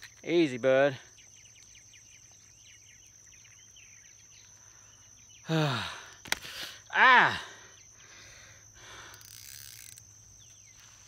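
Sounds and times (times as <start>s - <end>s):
faint chirps: 0.0s - 11.0s
high insect buzz: 0.0s - 11.0s
man grunting: 5.5s - 6.0s, 6.9s - 7.6s.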